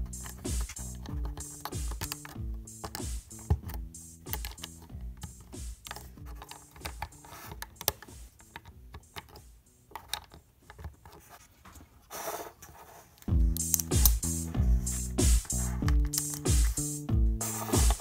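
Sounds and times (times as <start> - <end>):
background music: 0.0 - 11.3, 13.2 - 18.0
plastic bricks clicking: 0.1 - 11.3, 15.8 - 16.5.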